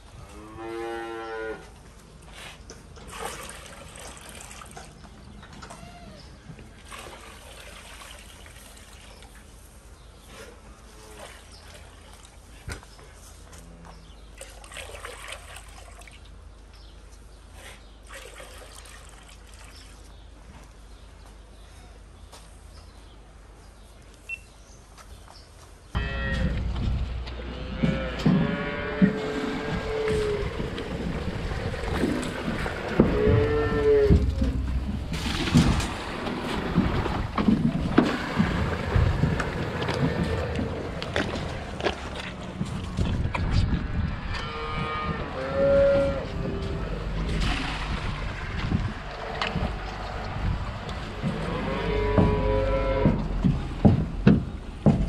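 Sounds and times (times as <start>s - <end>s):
cow mooing: 26.0s - 30.6s, 33.0s - 34.4s, 44.3s - 47.3s, 51.2s - 53.4s
barn noise with knocks: 26.0s - 55.0s.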